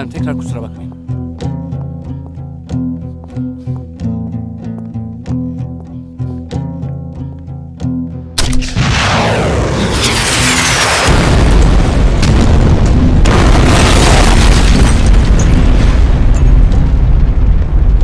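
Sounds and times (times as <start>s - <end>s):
heavy explosion: 8.5s - 18.0s
grenade falling whoosh: 8.6s - 16.0s
long rumble: 8.8s - 18.0s.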